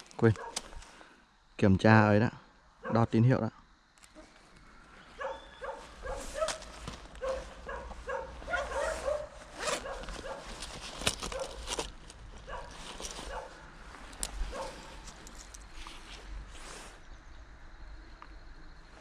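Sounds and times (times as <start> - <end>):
cloth bag rustling: 5.2 - 16.2.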